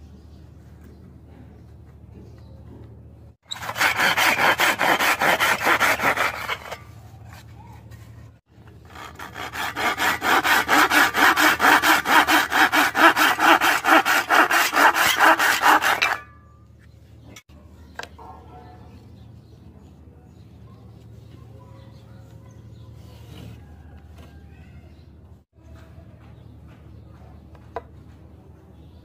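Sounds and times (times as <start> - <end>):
handsaw cutting wood: 3.4 - 6.9, 8.6 - 16.4.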